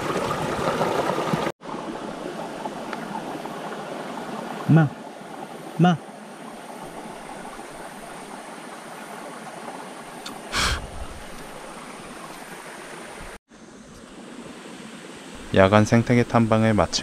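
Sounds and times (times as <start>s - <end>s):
mountain stream rushing: 0.0s - 13.4s.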